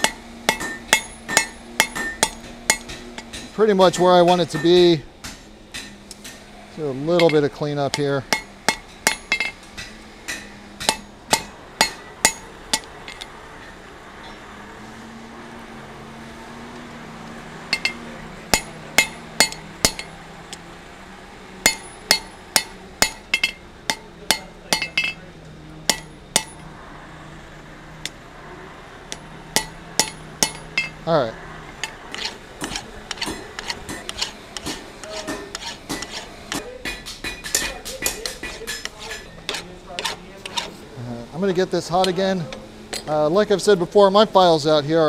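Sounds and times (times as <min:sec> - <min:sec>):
hammer striking steel on anvil: 0:00.0 - 0:14.4, 0:17.7 - 0:20.7, 0:21.6 - 0:26.8, 0:29.1 - 0:31.0, 0:31.7 - 0:40.8, 0:42.0 - 0:43.2.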